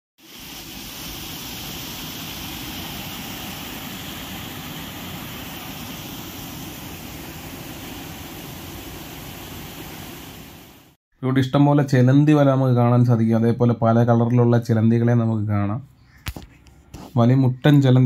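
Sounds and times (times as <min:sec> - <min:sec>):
waterfall and stream rushing: 0:00.3 - 0:11.0.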